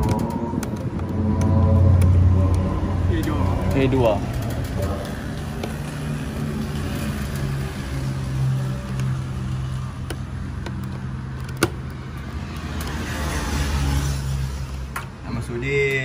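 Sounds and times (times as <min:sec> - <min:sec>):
low engine hum: 0:00.0 - 0:11.4.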